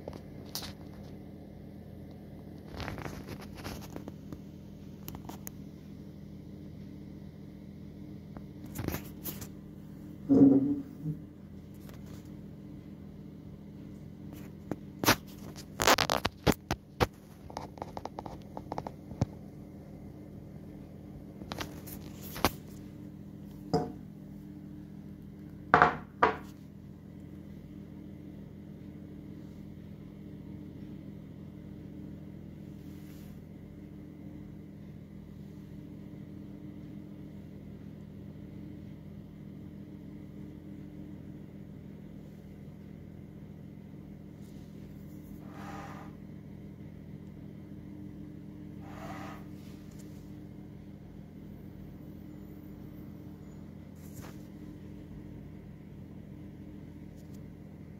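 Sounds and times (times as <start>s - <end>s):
steady low hum: 0.0s - 57.9s
doorstop knocking on stone countertop: 25.8s - 26.4s.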